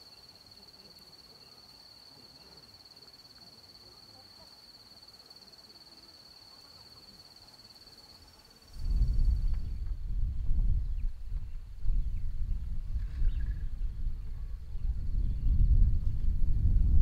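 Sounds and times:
insect trill: 0:00.0 - 0:09.8
wind buffeting microphone: 0:08.7 - 0:17.0.

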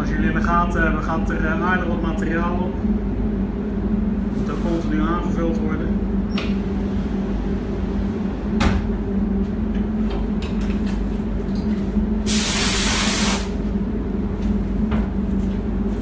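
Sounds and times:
steady low hum: 0:00.0 - 0:16.0
paint spray gun hissing: 0:12.3 - 0:13.6.

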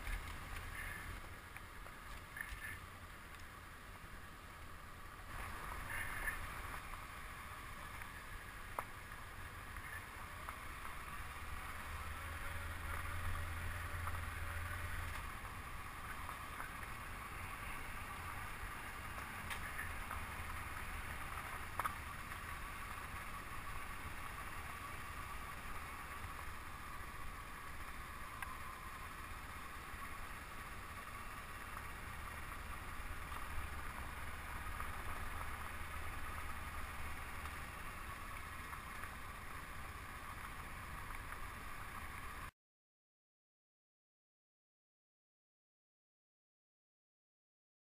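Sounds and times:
motorcycle engine running: 0:04.8 - 0:42.4.

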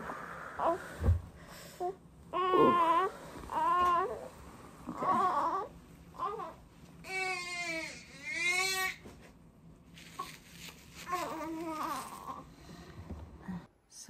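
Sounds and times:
newborn baby crying: 0:02.3 - 0:04.3, 0:04.9 - 0:09.0.

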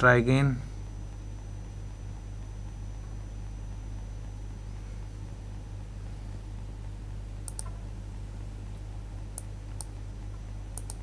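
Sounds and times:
low electrical hum: 0:00.0 - 0:11.0
computer mouse clicks: 0:07.4 - 0:07.8, 0:09.3 - 0:11.0.

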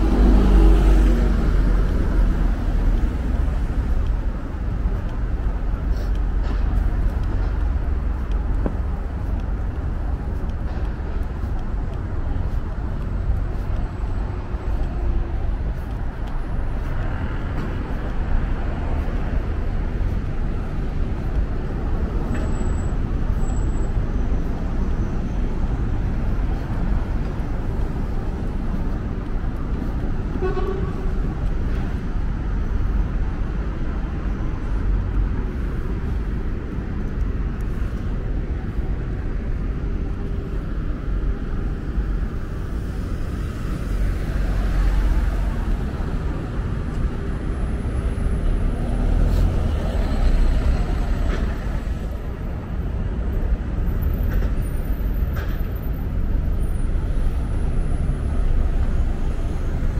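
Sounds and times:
city traffic rumble: 0:00.0 - 0:59.9
voices of passers-by: 0:00.0 - 0:59.9
vehicle horn toot: 0:30.4 - 0:31.1.

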